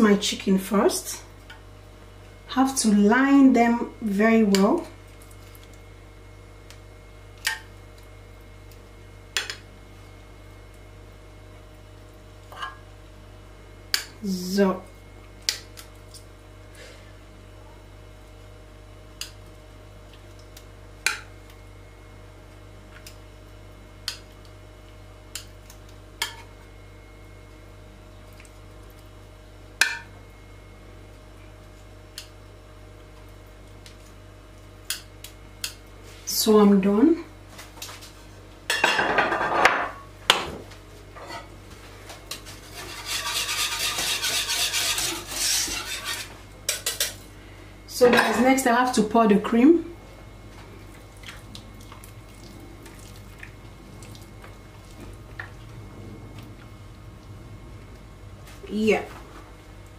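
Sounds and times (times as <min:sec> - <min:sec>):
utensil scraping cooking pot: 0:42.3 - 0:47.2
low hum: 0:49.8 - 0:59.9.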